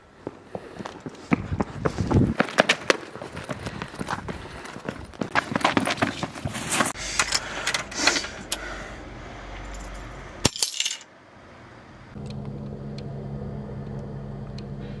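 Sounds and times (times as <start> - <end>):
keys dropped on hard floor: 9.7 - 11.1
low steady hum: 11.6 - 15.0.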